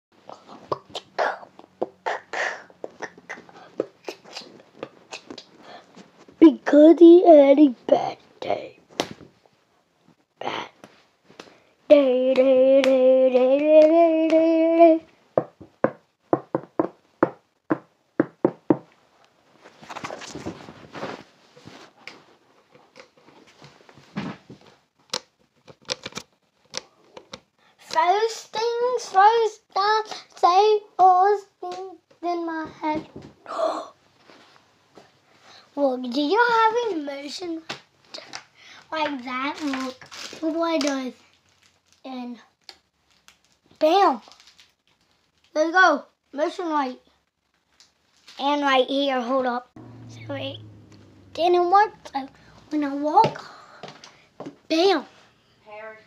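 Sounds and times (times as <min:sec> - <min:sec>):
mouth clicks and pops: 0:00.5 - 0:05.6
boy's breathy hissing puffs: 0:02.1 - 0:02.8
knocks and thump: 0:15.4 - 0:18.9
rustling: 0:19.1 - 0:24.9.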